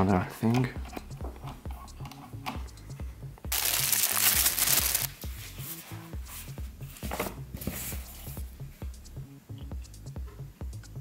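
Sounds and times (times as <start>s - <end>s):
background music with low beat: 0.0s - 11.0s
paper rustling: 3.5s - 6.0s.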